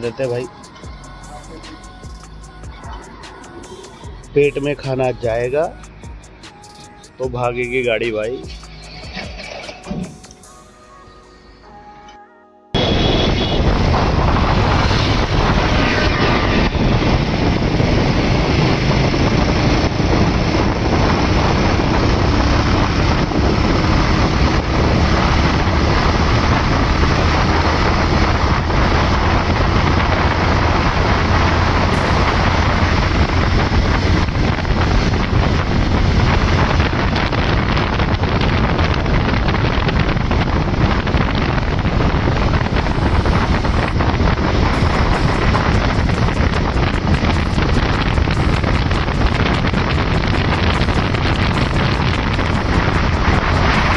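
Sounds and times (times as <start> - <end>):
road noise: 0.0 - 10.6, 12.7 - 53.9
motorcycle engine: 12.8 - 53.9
wind buffeting microphone: 12.8 - 53.9.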